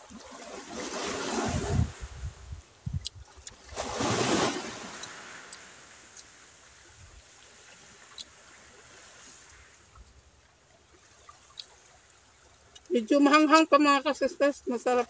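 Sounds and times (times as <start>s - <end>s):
surf rushing: 0.0s - 2.2s, 3.7s - 6.2s
wind: 0.0s - 15.0s.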